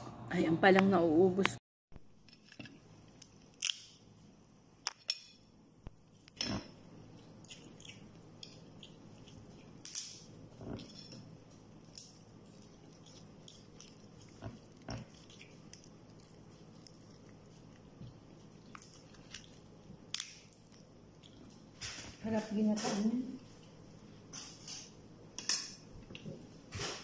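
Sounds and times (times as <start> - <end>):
soft eating sounds: 5.8 - 22.3, 23.3 - 26.8.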